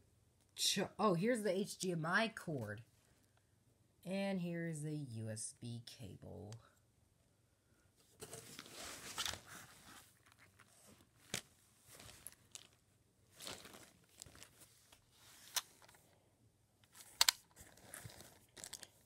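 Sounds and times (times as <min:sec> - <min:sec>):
plastic bag crinkling: 0:10.2 - 0:15.0, 0:17.0 - 0:19.0.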